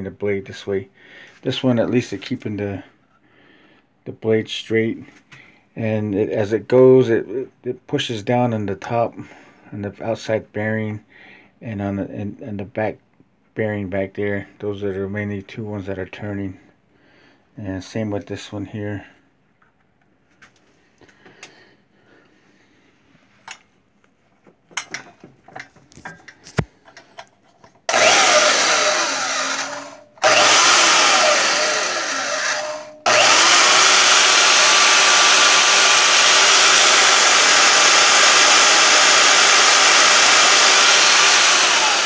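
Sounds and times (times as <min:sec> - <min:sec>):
bandsaw motor running: 0:27.9 - 0:42.0.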